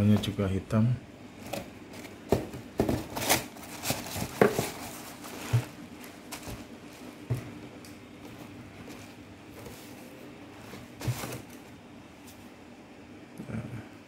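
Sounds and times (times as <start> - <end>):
clogs handled in cardboard box: 1.4 - 11.7.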